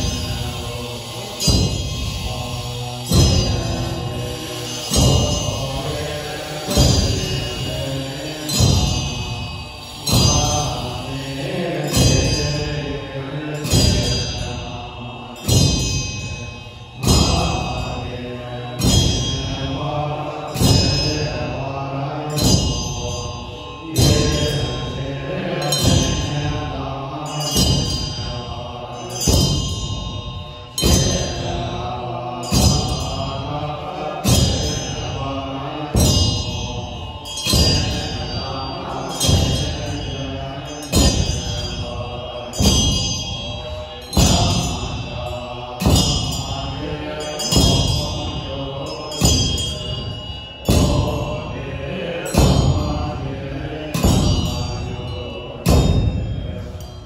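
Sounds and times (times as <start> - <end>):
drum and cymbals struck: 0.0 - 57.0
voices chanting in unison: 0.0 - 57.0.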